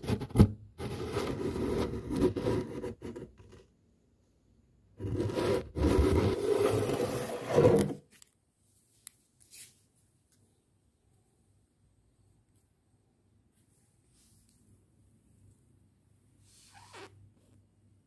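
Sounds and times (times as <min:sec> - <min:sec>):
rough rubbing and scraping: 0:00.0 - 0:03.6, 0:05.0 - 0:08.0.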